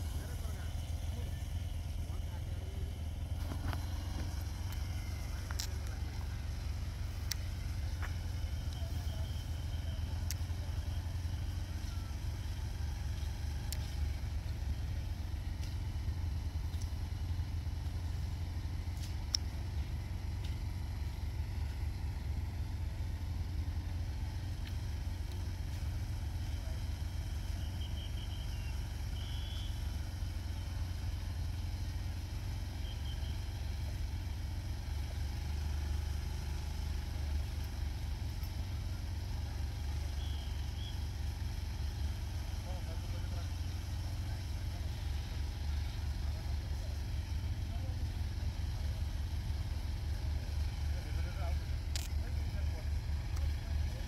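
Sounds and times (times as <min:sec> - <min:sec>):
faint high chirps: 0:26.5 - 0:30.0, 0:32.7 - 0:33.6, 0:39.9 - 0:42.3.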